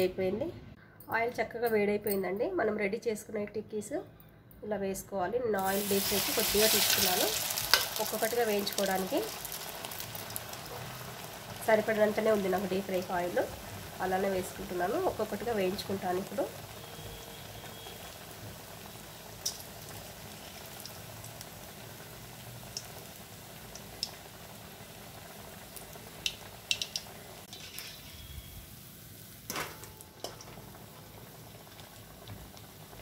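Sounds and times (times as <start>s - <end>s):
food deep-frying in oil: 5.6s - 33.0s.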